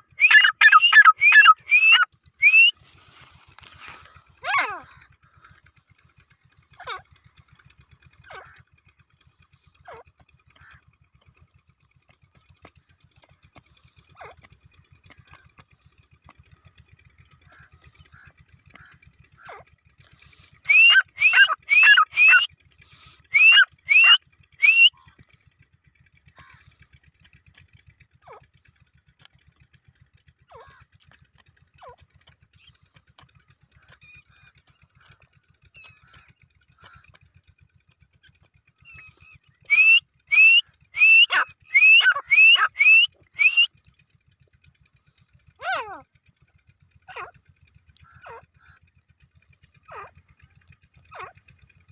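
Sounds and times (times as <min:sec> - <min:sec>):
bird calling ringing notes: 0:00.0 - 0:08.7, 0:12.6 - 0:25.2, 0:29.0 - 0:44.3, 0:45.4 - 0:46.0, 0:49.6 - 0:51.9
faint short chirps: 0:37.2 - 0:44.3.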